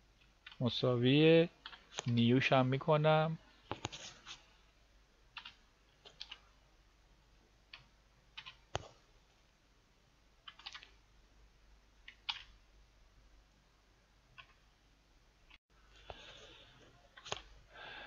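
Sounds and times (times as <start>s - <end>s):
computer keyboard and mouse clicks: 0.2s - 0.6s, 5.4s - 6.4s, 7.7s - 9.0s, 10.4s - 11.0s, 12.0s - 12.6s, 14.4s - 14.6s, 17.2s - 17.5s.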